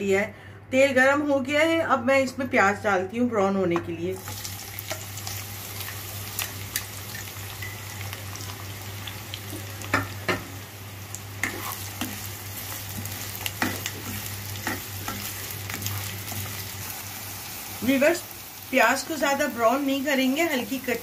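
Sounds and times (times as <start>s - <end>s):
onions sizzling in oil: 4.2s - 21.0s
spatula scraping a pan: 11.4s - 16.1s.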